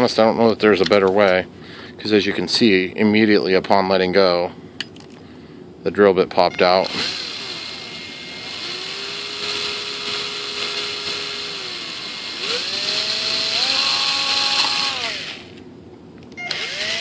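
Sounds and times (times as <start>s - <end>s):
small electric drill drilling: 6.8s - 15.6s, 16.4s - 17.0s.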